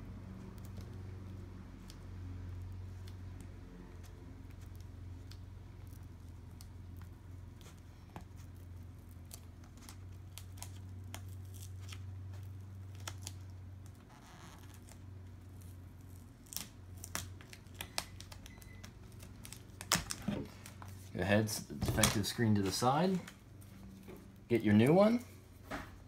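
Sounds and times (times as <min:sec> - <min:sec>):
low steady hum: 0:00.0 - 0:26.0
sticker peeling: 0:00.2 - 0:24.5
small clicks and scratches: 0:00.3 - 0:21.0.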